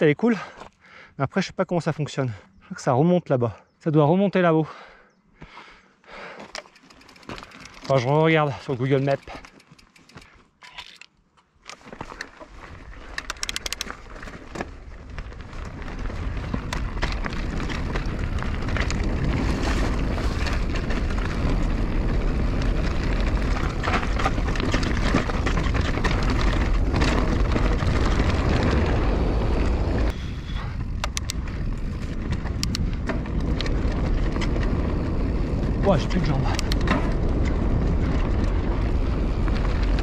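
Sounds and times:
bike rattling and clicking: 0:06.1 - 0:40.0
tyres crunching on gravel: 0:06.4 - 0:10.5, 0:11.7 - 0:30.2
wind rumbling on microphone: 0:12.0 - 0:40.0.

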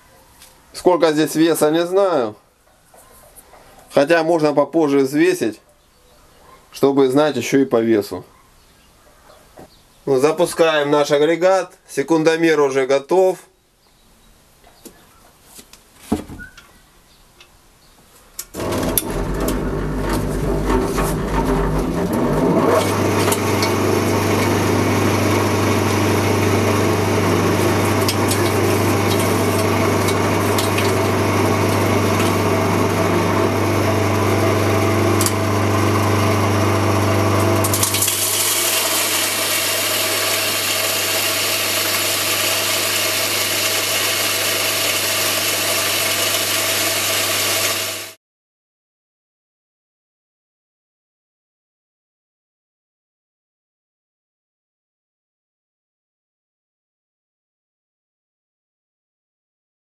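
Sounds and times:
grain crusher motor humming: 0:18.5 - 0:48.2
grain grinding: 0:18.6 - 0:48.1.

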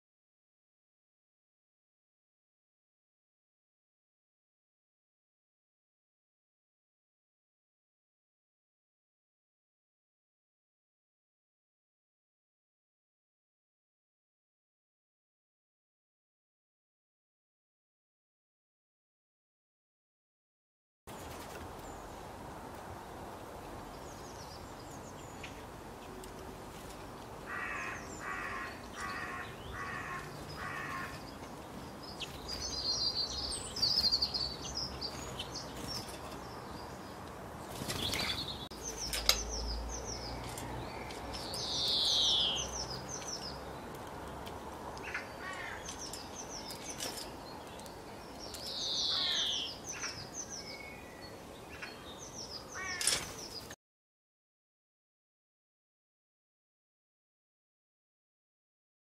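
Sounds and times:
starling calling and singing: 0:27.5 - 0:43.9, 0:45.0 - 0:53.7.

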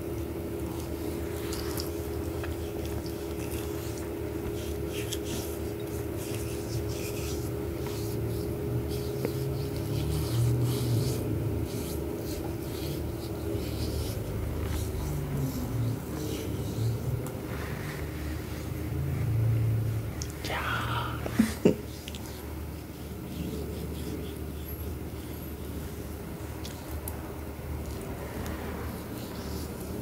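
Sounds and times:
steady background hum: 0:00.0 - 0:30.0
scratchy rubbing of paste on skin: 0:00.7 - 0:18.8, 0:21.9 - 0:26.9.

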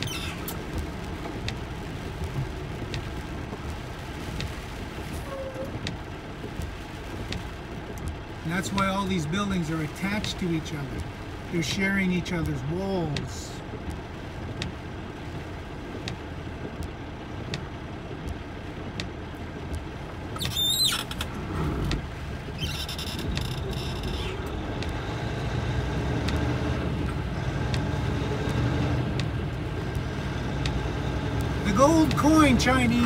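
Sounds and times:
car cabin road noise: 0:00.0 - 0:33.0.

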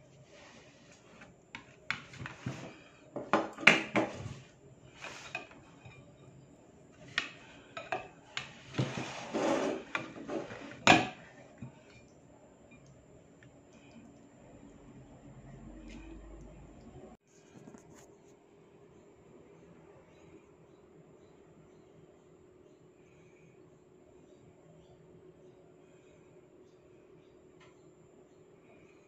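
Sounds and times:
utensils scraping a ceramic plate: 0:04.0 - 0:06.2, 0:07.0 - 0:11.3.

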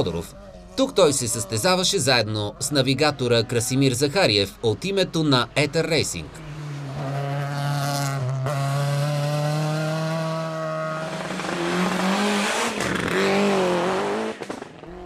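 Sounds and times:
rally car engines at high revs: 0:06.2 - 0:15.0.

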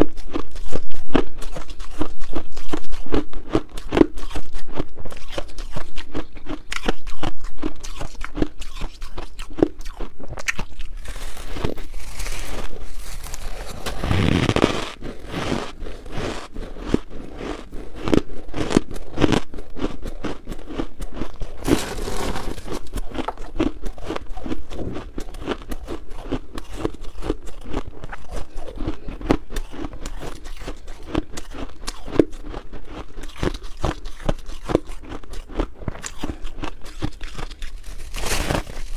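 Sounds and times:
chewing shaved ice: 0:00.0 - 0:38.9
rasping noise: 0:11.0 - 0:19.4.

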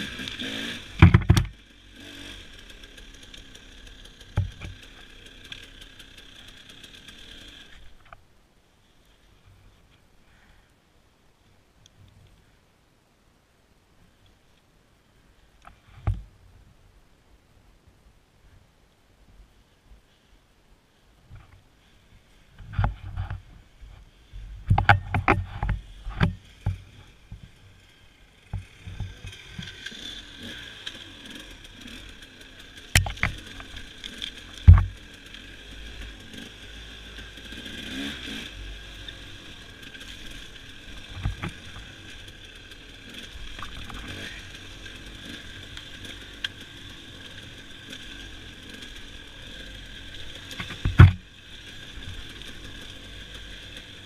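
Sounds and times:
dirt bike engine droning: 0:00.0 - 0:12.7, 0:19.4 - 0:54.0
bike knocking over bumps: 0:01.0 - 0:01.6, 0:04.3 - 0:04.9, 0:33.0 - 0:35.0, 0:50.6 - 0:51.3.

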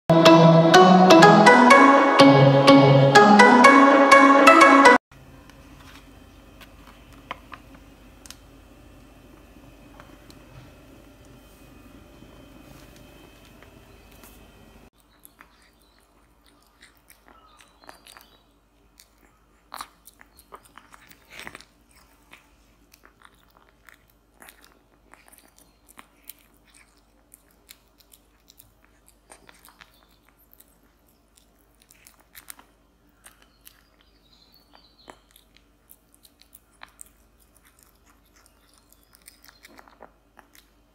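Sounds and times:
kitten chewing: 0:12.4 - 0:40.9.

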